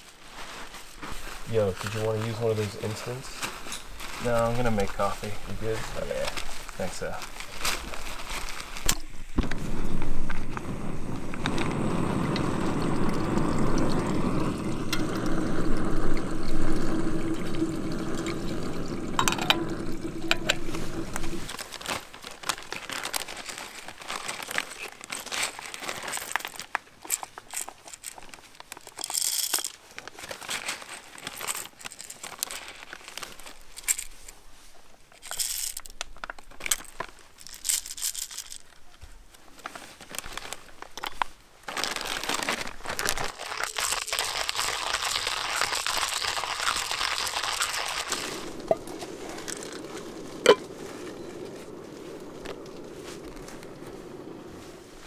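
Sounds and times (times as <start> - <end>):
plastic bag crinkling: 0.0 - 54.3
coffee beans pouring: 1.5 - 26.7, 27.5 - 29.8, 35.2 - 35.9, 36.7 - 38.7, 41.7 - 53.8.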